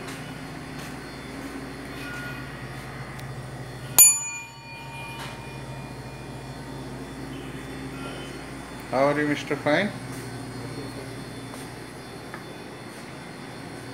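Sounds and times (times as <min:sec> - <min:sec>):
kitchen ventilation hum: 0:00.0 - 0:13.9
sharp metallic ring: 0:04.0 - 0:08.2.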